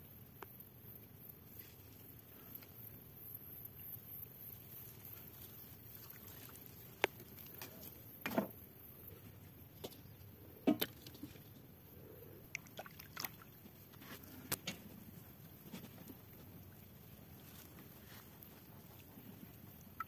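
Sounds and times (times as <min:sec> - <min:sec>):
small splashes in water: 0:12.5 - 0:13.8.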